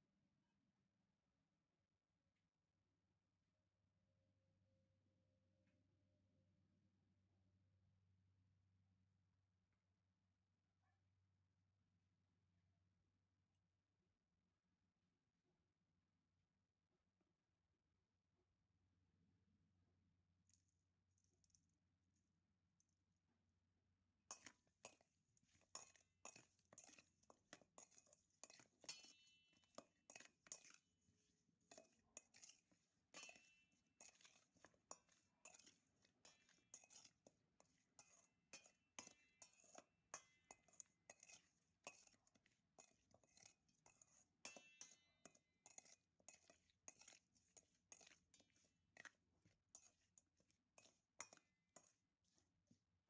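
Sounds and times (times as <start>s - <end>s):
chicken clinking against steel bowl: 24.4s - 30.9s, 31.6s - 52.0s.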